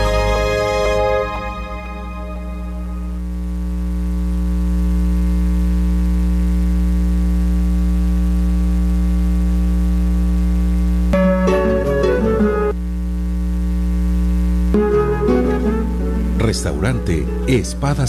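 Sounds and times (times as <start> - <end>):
short musical notes: 0.0 - 3.2, 11.1 - 12.8, 14.8 - 18.0
low electronic drone: 0.0 - 3.5.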